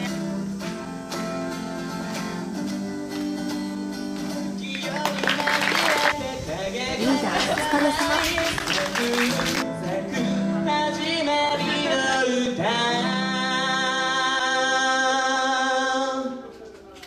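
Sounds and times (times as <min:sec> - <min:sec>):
song with singing over instruments: 0:04.2 - 0:16.6.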